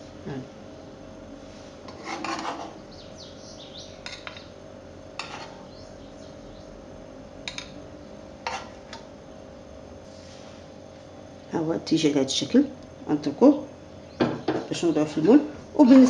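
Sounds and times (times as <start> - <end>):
steady hum: 0.0 - 16.0
metal spoon scraping pan: 1.8 - 2.8, 5.2 - 5.6, 8.4 - 9.0.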